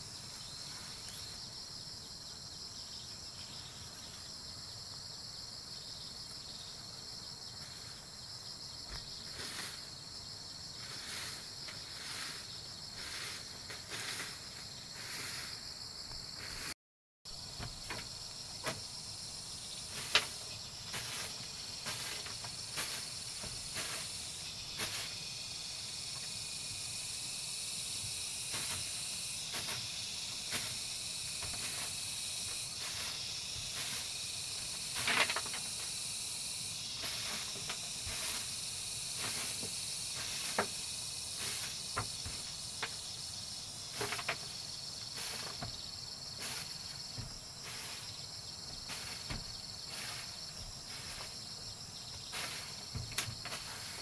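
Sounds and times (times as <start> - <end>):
insects chirring: 0.0 - 54.0
light knocks and rustles: 17.5 - 18.9, 43.9 - 44.6, 46.4 - 48.0, 48.7 - 51.4, 52.1 - 54.0.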